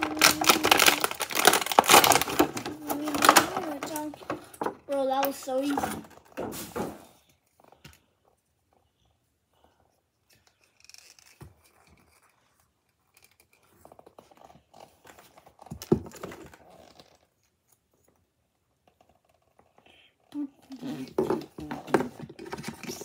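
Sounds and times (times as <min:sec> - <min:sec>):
plastic toy scratching: 0:00.0 - 0:06.3, 0:10.2 - 0:17.4, 0:20.6 - 0:23.0
packaging rustling: 0:00.0 - 0:07.0.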